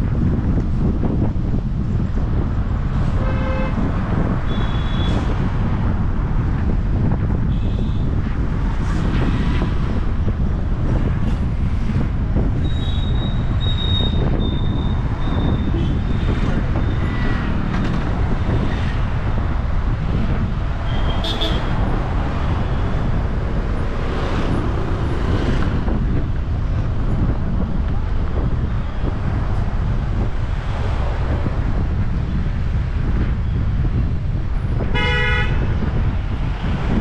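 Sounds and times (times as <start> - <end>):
car engine and tyre noise: 0.0 - 37.0.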